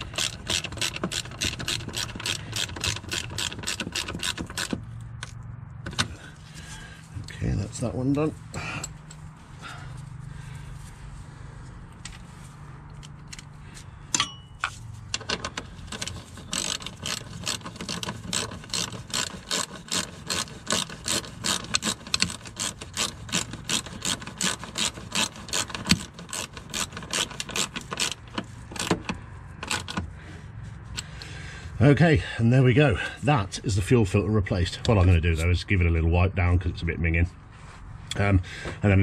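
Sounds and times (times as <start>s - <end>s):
hand ratchet clicking: 0.0s - 6.1s, 15.1s - 30.1s
sharp metallic clink: 14.1s - 14.7s.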